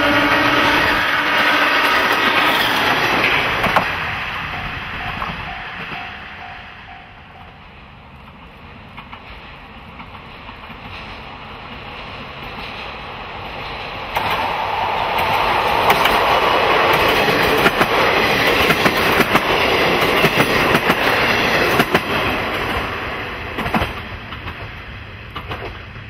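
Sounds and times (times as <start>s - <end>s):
train horn note: 0.0s - 2.0s
train wheels clattering on rails: 0.4s - 7.6s, 8.2s - 26.0s.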